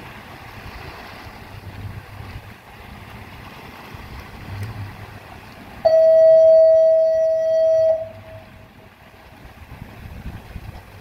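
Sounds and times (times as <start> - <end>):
low wind: 0.0 - 11.0
water noise: 0.0 - 11.0
loud steady tone: 5.8 - 8.7.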